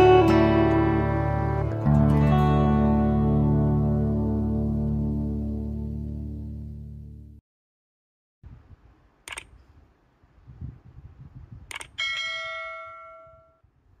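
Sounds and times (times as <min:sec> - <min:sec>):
song playing: 0:00.0 - 0:07.1
mouse clicks: 0:09.3 - 0:09.6
bright bell ding: 0:12.0 - 0:13.6.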